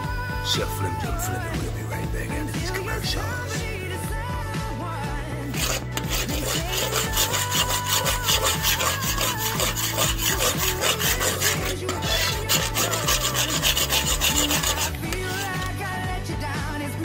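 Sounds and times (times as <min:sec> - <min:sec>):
music with scratchy beat and bass: 0:00.0 - 0:17.0.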